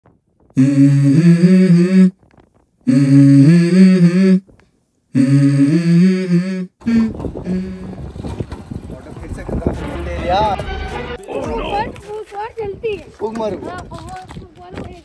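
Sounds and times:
noisy held note: 0.6 - 2.1, 2.9 - 4.4, 5.2 - 7.9
person humming melody: 0.6 - 2.2, 2.9 - 4.4, 5.2 - 8.0.

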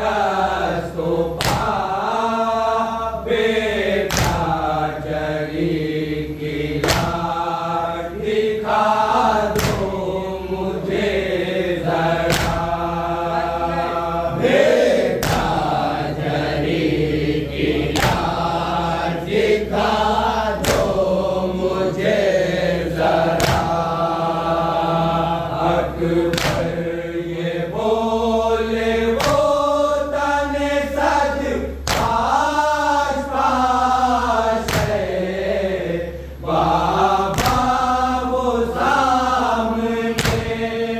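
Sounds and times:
group singing a lament: 0.0 - 40.9
chest-beating with hands: 1.4 - 1.9, 4.1 - 4.6, 6.8 - 7.3, 9.6 - 10.0, 12.3 - 12.8, 20.6 - 21.0, 23.4 - 23.8, 26.3 - 26.8, 31.8 - 32.4, 34.7 - 35.1, 37.3 - 37.9, 40.2 - 40.7.

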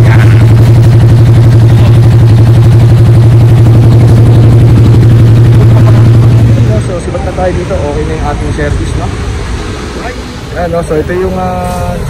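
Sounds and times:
motorcycle engine idling: 0.0 - 8.1.

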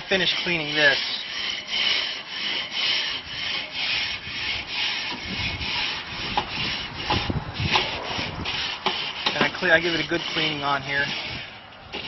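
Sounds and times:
wire brush scrubbing metal grate: 0.0 - 12.0.

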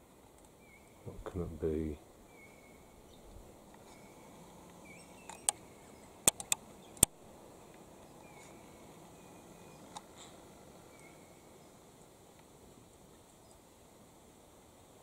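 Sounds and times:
faint high bird chirps: 2.3 - 6.2, 8.0 - 10.0, 10.9 - 11.8
camera handling clicks: 6.3 - 7.1.

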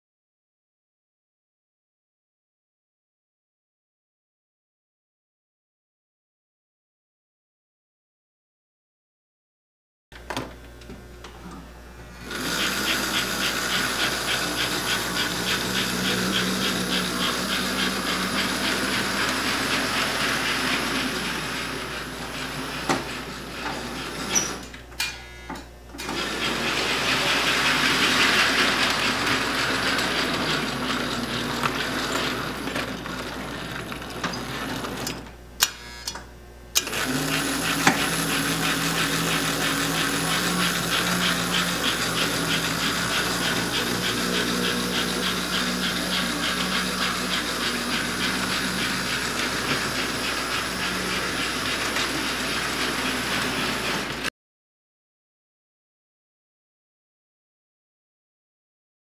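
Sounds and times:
electric motor whir: 11.6 - 54.3
wheels clicking on track: 12.3 - 24.7, 26.0 - 35.3, 36.8 - 54.3.

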